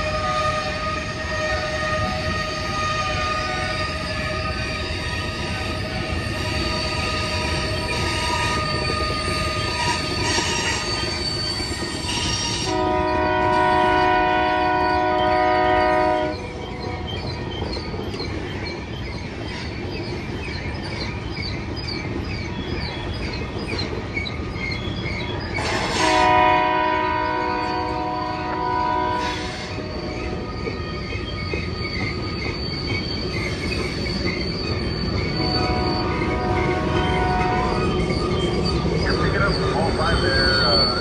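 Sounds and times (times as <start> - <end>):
train rumbling: 0.0 - 41.0
train wheels squealing: 0.0 - 41.0
locomotive air horn blast: 12.5 - 16.4, 25.6 - 29.8, 35.4 - 37.8.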